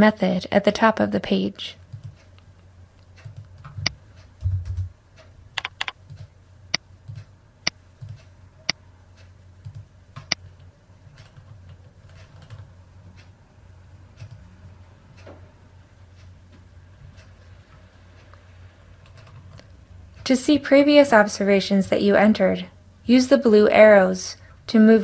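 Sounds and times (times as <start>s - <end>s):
keyboard and mouse clicks: 1.9s - 2.3s, 3.1s - 6.3s, 7.0s - 13.3s, 14.2s - 14.4s.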